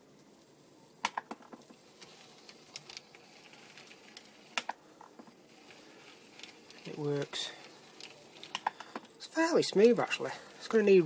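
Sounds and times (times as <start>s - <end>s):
model train running: 1.7s - 4.6s, 5.4s - 11.0s.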